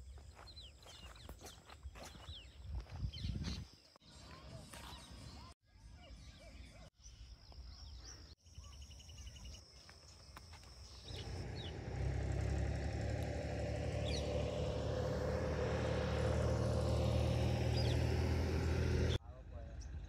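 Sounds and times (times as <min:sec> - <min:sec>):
faint bird chirps: 0:00.0 - 0:11.7.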